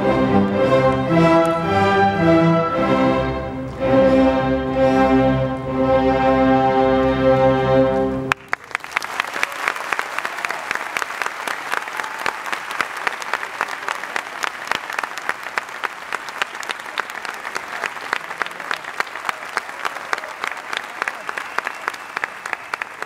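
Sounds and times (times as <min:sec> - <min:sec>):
audience applauding: 0:08.3 - 0:23.0.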